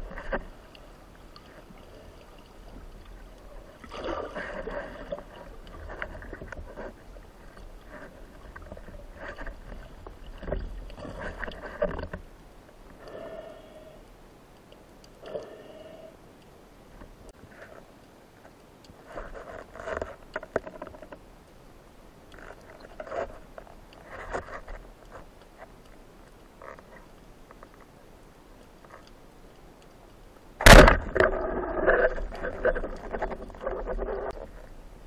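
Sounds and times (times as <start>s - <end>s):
faint clicks and scrapes: 0.0s - 35.0s
speargun firing underwater: 30.6s - 31.6s.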